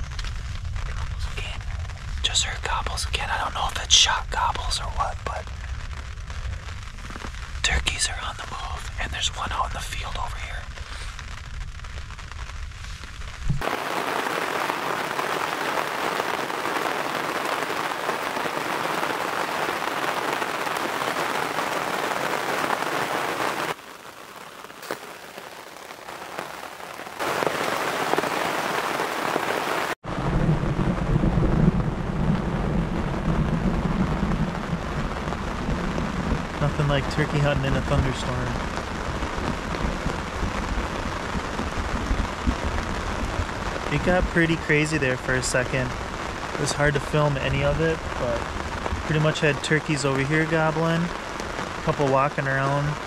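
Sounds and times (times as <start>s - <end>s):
heavy rain hissing: 0.0s - 53.0s
low rumble: 30.1s - 49.2s.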